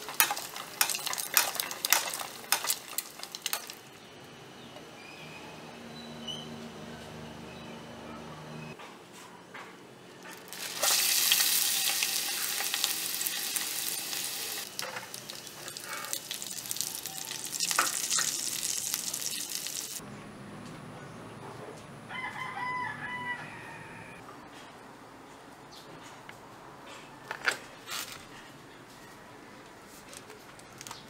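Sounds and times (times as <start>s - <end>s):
meat sizzling in hot oil: 0.0s - 3.8s, 10.3s - 20.0s
rooster crowing: 22.1s - 24.2s.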